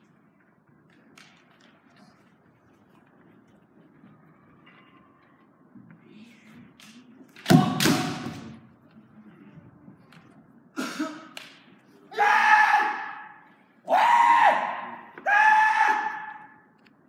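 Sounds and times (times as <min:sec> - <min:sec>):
bamboo sword hit: 0:07.4 - 0:08.4.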